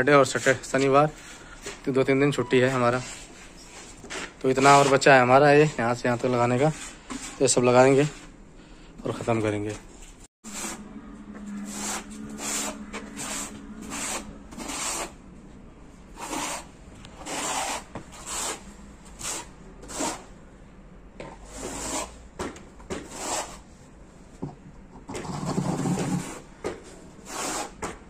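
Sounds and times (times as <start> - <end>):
trowel scraping adhesive on concrete: 11.7 - 15.2, 16.2 - 18.6, 19.2 - 20.3, 23.0 - 23.6, 25.1 - 26.4, 27.2 - 27.9.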